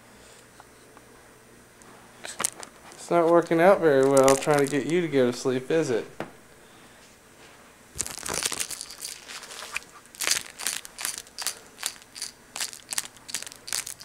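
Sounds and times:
short crinkly scrapes: 8.0 - 10.9.

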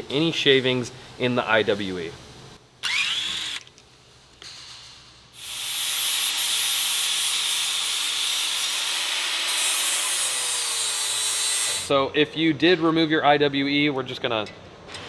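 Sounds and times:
angle grinder grinding metal: 5.4 - 11.9.

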